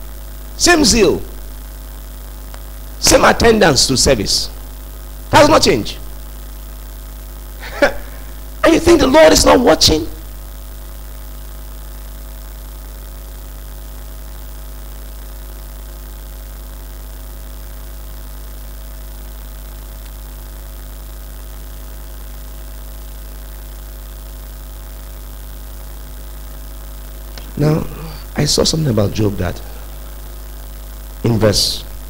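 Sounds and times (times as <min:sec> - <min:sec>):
electrical mains hum: 0:00.0 - 0:32.0.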